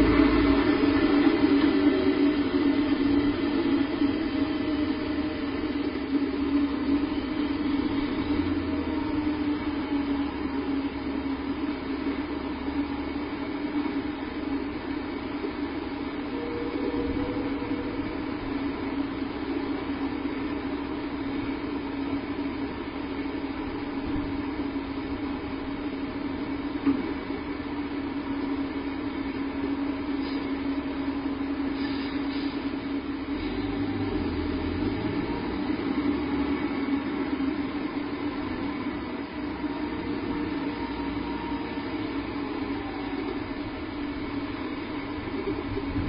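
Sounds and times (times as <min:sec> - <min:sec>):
steady hum: 0:00.0 - 0:46.0
rushing hiss: 0:31.7 - 0:32.8.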